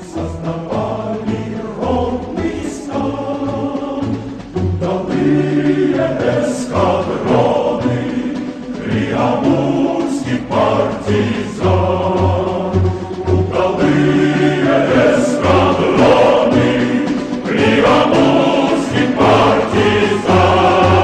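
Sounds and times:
choir singing: 0.0s - 21.0s.

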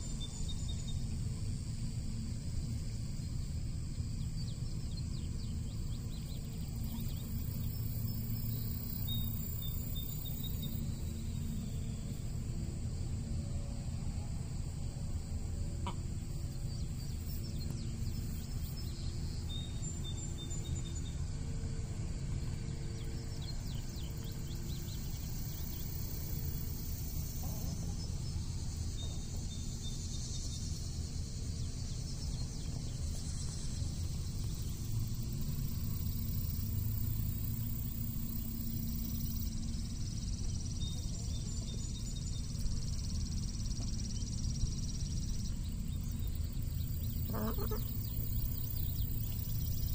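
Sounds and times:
steady low rumble: 0.0s - 49.9s
faint high bird chirps: 45.3s - 49.9s.

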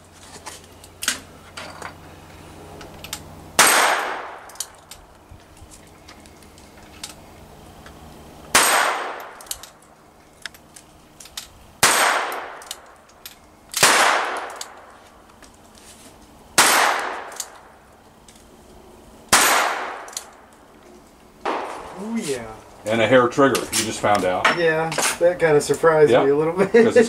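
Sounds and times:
handgun shots with echo: 3.6s - 4.6s, 8.5s - 9.4s, 11.8s - 12.8s, 13.8s - 14.8s, 16.6s - 17.6s, 19.3s - 20.3s, 21.4s - 21.8s.

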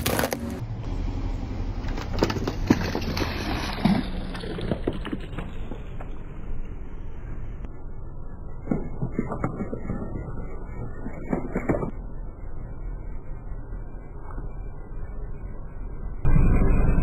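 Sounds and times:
plastic bottle crunching under tyre: 0.0s - 0.6s, 2.1s - 6.1s
steady low rumble: 0.0s - 17.0s.

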